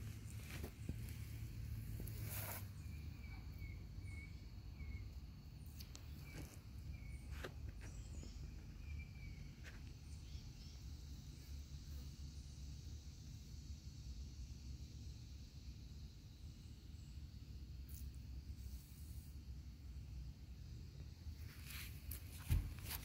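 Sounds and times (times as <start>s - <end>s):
small bird chirping: 0.2s - 11.5s.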